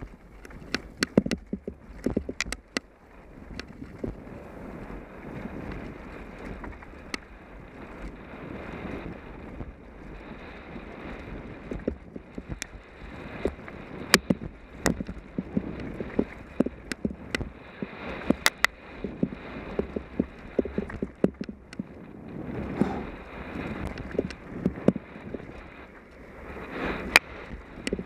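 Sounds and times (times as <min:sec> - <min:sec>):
bike clicks and knocks: 0:00.0 - 0:02.9, 0:14.1 - 0:17.5, 0:19.8 - 0:21.9
tyre and wind noise: 0:00.0 - 0:28.0.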